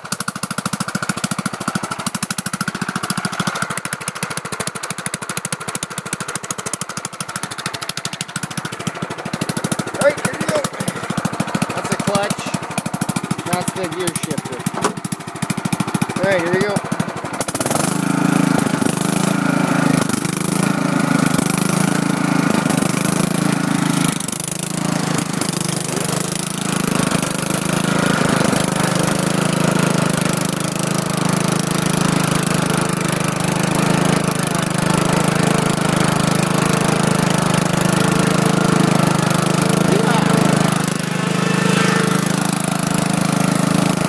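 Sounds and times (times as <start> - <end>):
riding lawn tractor engine: 0.0 - 44.0.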